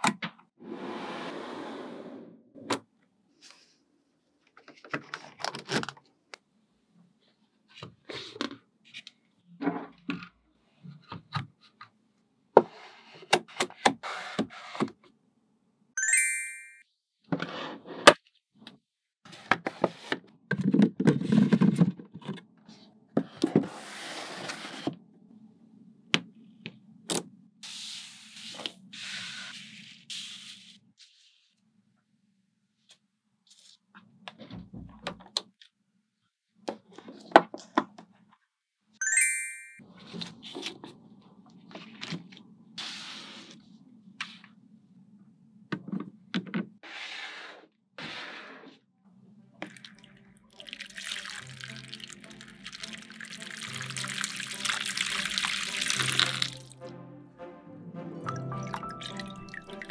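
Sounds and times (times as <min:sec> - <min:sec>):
high ringing tone: 0:16.0 - 0:16.8, 0:39.0 - 0:39.8.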